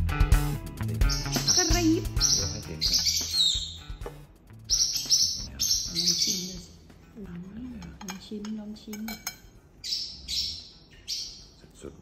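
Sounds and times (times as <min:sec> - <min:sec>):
faint background music: 0:00.0 - 0:12.0
small birds chirping: 0:00.9 - 0:06.9, 0:09.8 - 0:12.0.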